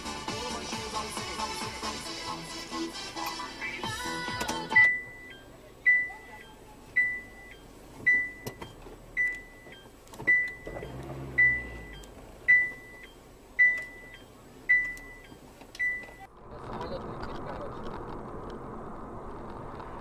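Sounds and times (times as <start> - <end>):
faint low rumble: 5.0 - 20.0.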